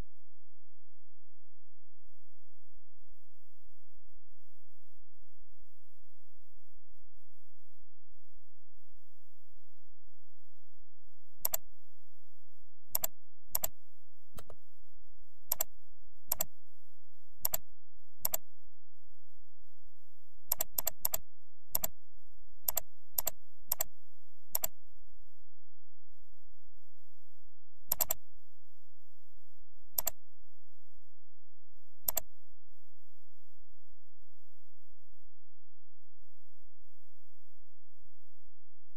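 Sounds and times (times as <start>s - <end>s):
faint high-pitched whine: 0.0s - 38.9s
computer mouse clicking: 11.4s - 11.6s, 13.0s - 13.8s, 15.5s - 15.7s, 16.3s - 16.5s, 17.4s - 17.6s, 18.2s - 18.4s, 20.5s - 21.2s, 21.8s - 22.0s, 22.7s - 23.9s, 24.5s - 24.8s, 27.9s - 28.2s, 30.0s - 30.2s, 32.1s - 32.3s.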